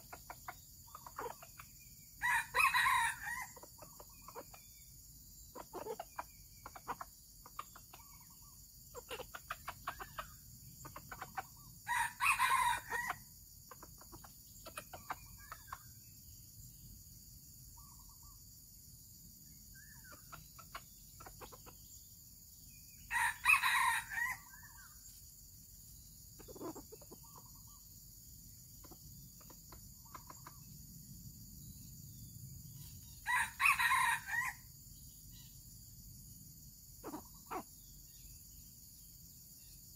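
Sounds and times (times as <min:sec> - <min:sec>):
faint chicken clucks: 0:00.0 - 0:39.9
rooster crowing: 0:02.2 - 0:03.6, 0:11.9 - 0:13.3, 0:23.1 - 0:24.6, 0:33.2 - 0:34.7.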